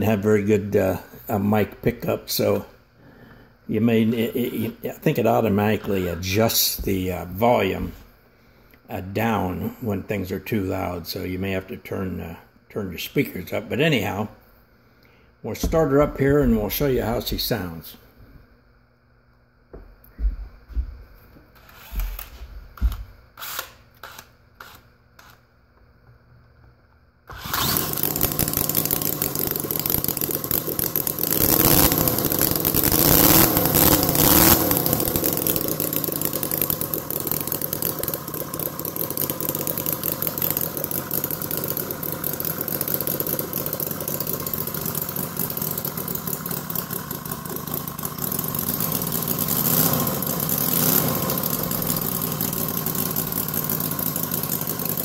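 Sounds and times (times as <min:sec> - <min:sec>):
model engine running: 0:27.3 - 0:55.0.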